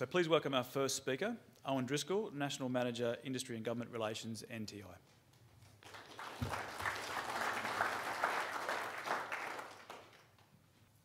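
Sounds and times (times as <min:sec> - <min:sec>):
audience applauding: 0:05.8 - 0:10.5.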